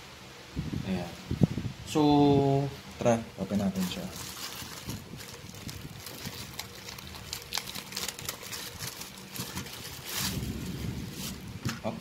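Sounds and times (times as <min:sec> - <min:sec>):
plastic bag crinkling: 0:03.5 - 0:12.0.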